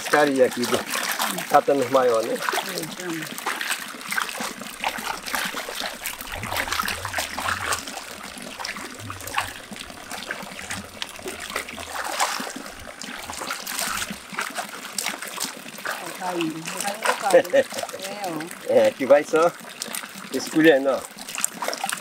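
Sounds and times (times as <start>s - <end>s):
water splashing and trickling: 0.0s - 22.0s.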